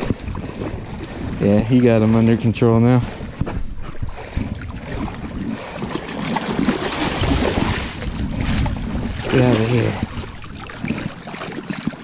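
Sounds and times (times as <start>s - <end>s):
fish splashing in water: 4.1s - 12.0s.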